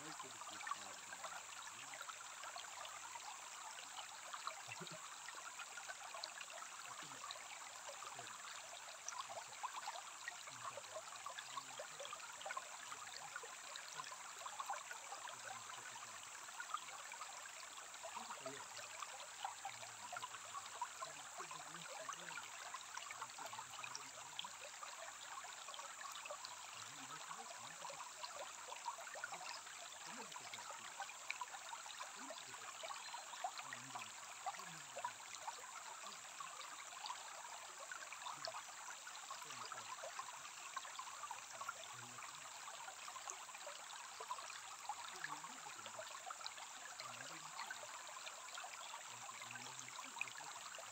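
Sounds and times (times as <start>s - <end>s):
stream babbling over pebbles: 0.0s - 50.9s.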